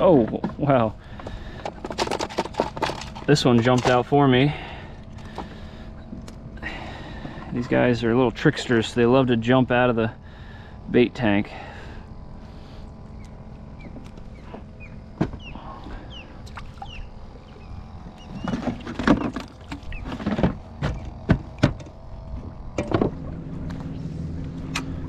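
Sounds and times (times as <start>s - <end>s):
knocks and clunks on kayak: 18.2s - 23.2s.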